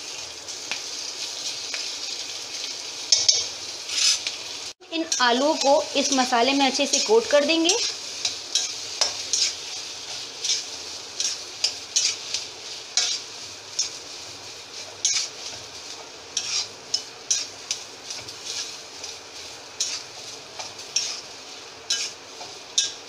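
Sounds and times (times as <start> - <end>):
oil sizzling: 0.0 - 23.0
spoon scraping a metal pan: 3.1 - 4.4, 5.0 - 14.0, 14.9 - 15.6, 16.4 - 19.2, 19.8 - 21.3, 21.9 - 23.0.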